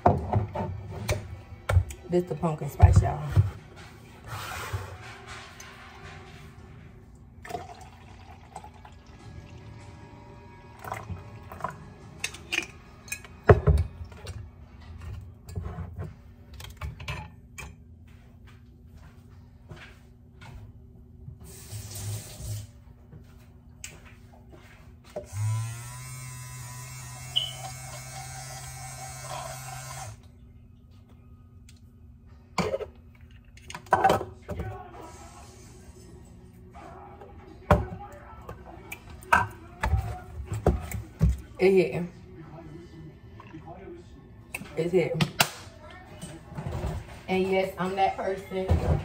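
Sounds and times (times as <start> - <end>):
liquid pouring into glass: 7.4 - 9.7, 10.8 - 11.8
milk frother whirring: 25.2 - 30.2.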